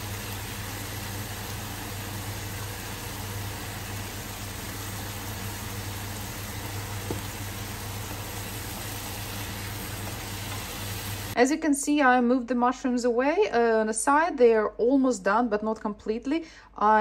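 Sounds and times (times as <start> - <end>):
food sizzling in oil: 0.0 - 11.4.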